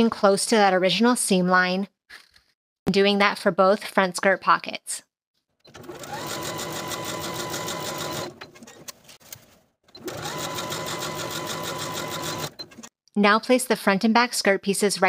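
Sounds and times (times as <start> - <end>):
sewing machine motor whining: 5.7 - 8.9, 10.0 - 12.9
sewing machine needle rattling: 5.7 - 9.0, 10.0 - 12.9.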